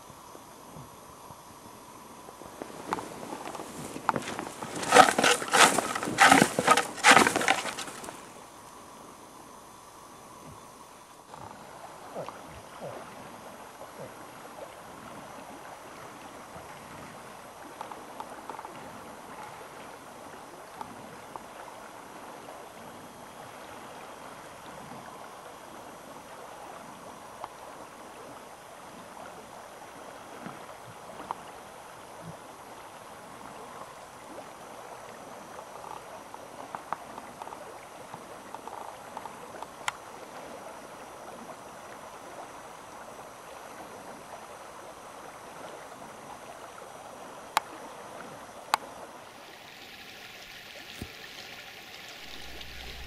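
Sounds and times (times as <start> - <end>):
rushing outdoor background noise: 0.0 - 12.0.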